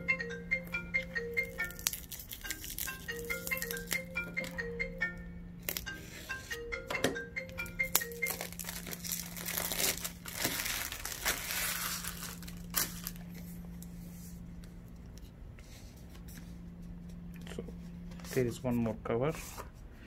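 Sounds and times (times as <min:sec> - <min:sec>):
melody-like notes: 0:00.0 - 0:13.2
steady low hum: 0:00.0 - 0:20.0
plastic wrap tearing and crinkling: 0:01.6 - 0:04.0, 0:07.9 - 0:13.4.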